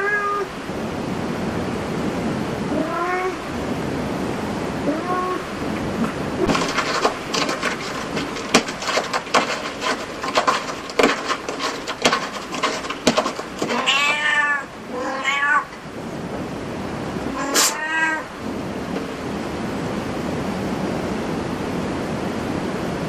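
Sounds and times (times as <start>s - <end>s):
cat meowing: 0.0s - 0.5s, 2.7s - 3.4s, 4.8s - 5.5s, 13.6s - 15.8s, 17.3s - 18.4s.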